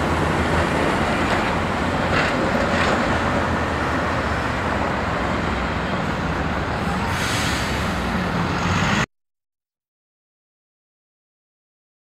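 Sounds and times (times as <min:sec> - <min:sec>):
road traffic noise: 0:00.0 - 0:09.1
streetcar running: 0:00.0 - 0:09.1
hiss: 0:07.0 - 0:08.2.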